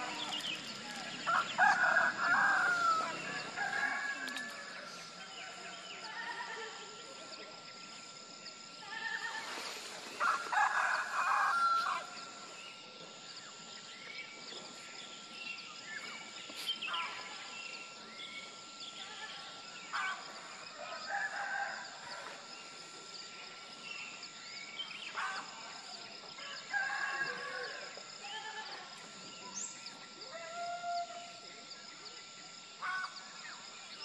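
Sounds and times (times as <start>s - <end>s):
roosters crowing: 0.0s - 5.0s, 10.2s - 12.4s, 20.9s - 22.4s, 26.4s - 28.0s.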